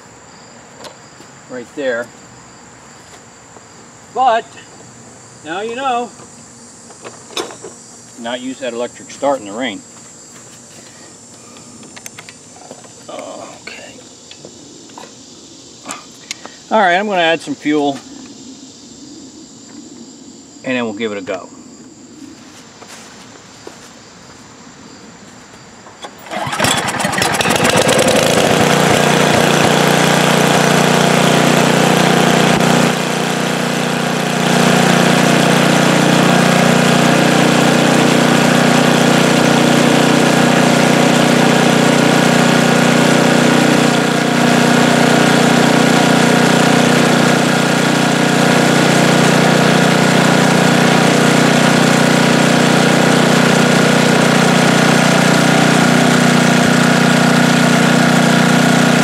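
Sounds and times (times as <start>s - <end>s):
small engine running steadily: 26.0s - 59.0s.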